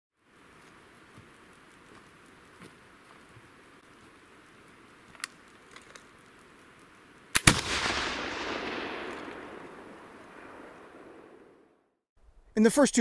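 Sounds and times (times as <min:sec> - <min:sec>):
rifle shot with long echo: 0:07.3 - 0:11.8.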